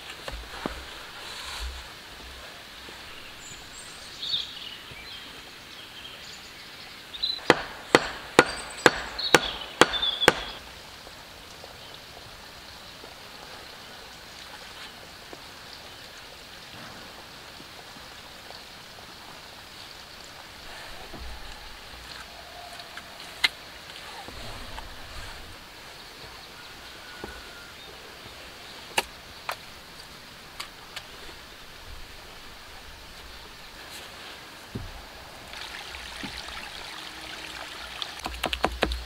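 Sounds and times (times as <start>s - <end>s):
sharp blows on wood: 7.4s - 10.6s.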